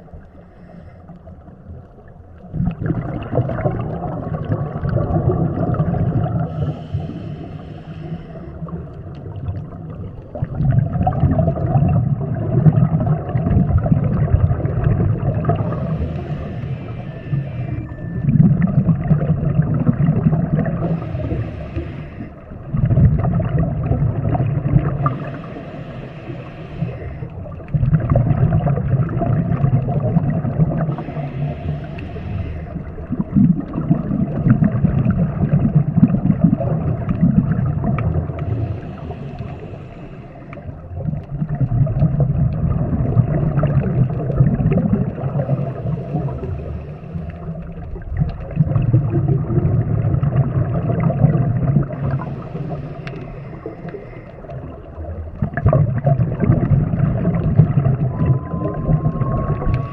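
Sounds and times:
bubbling exhaled air underwater: 0.0 - 59.9
regulator inhalation hiss: 6.5 - 8.8, 15.7 - 18.0, 20.8 - 22.4, 25.0 - 27.4, 30.9 - 32.9, 38.5 - 40.7, 52.1 - 54.5.

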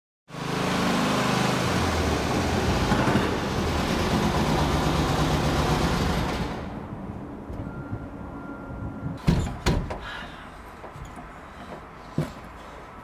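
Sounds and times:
engine running in parking garage: 0.3 - 8.9.

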